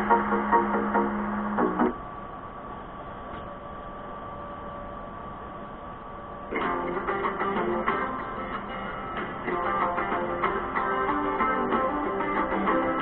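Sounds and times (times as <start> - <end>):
guitar-led music: 0.0 - 2.0, 6.5 - 13.0.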